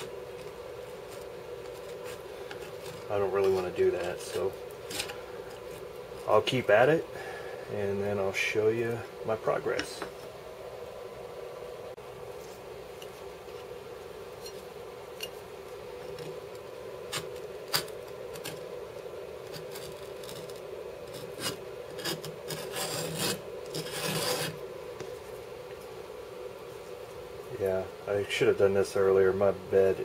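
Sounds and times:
putty knife scraping glue: 19.5s - 24.6s.

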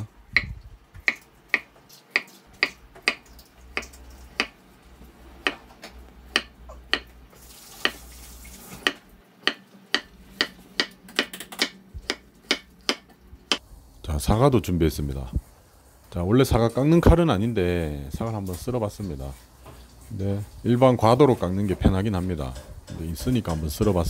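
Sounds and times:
knife chopping on wooden board: 0.4s - 3.2s, 3.8s - 4.6s, 5.4s - 7.2s, 7.8s - 8.0s, 8.8s - 13.6s.

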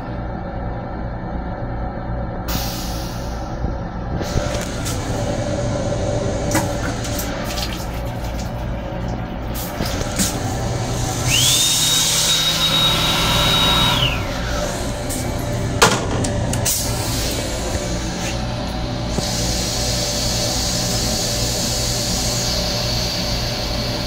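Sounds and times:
train car running rumble: 0.0s - 24.0s
small motor whining: 10.4s - 14.6s.

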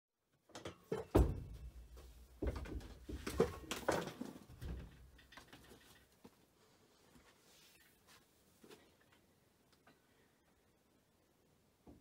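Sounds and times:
knocks and thumps: 0.6s - 5.8s
rustling: 1.9s - 9.2s.

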